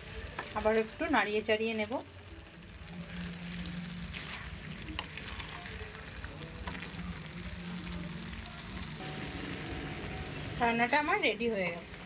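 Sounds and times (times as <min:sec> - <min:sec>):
food sizzling in a frying pan: 0:00.0 - 0:12.0
low steady hum: 0:00.0 - 0:12.0
spatula scraping a pan: 0:03.1 - 0:05.8.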